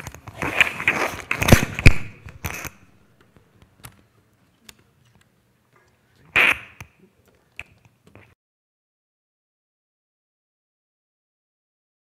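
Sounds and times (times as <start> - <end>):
faint electrical hum: 0.0 - 8.4.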